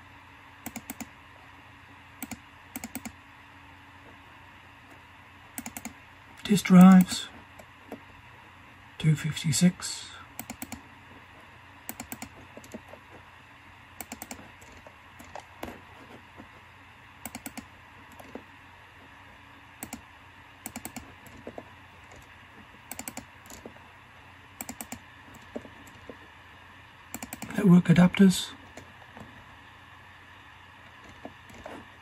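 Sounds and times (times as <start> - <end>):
computer keyboard clicking: 0.6 - 1.1, 2.2 - 3.2, 5.6 - 6.0, 10.4 - 10.8, 11.9 - 12.8, 14.0 - 15.8, 17.2 - 18.4, 19.8 - 20.0, 20.6 - 23.7, 24.6 - 26.0, 27.1 - 27.6.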